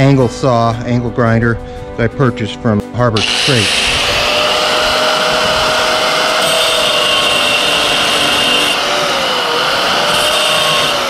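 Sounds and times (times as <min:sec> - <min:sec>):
angle grinder cutting metal: 0:03.2 - 0:11.0
high grinding hiss: 0:03.2 - 0:11.0.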